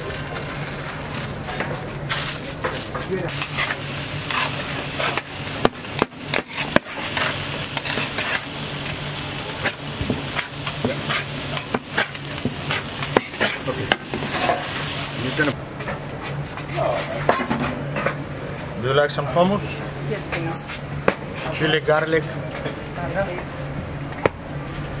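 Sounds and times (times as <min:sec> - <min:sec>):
food sizzling on griddle: 0:00.0 - 0:15.6, 0:18.2 - 0:23.7
metal utensils scraping griddle: 0:06.3 - 0:08.6, 0:10.4 - 0:15.5.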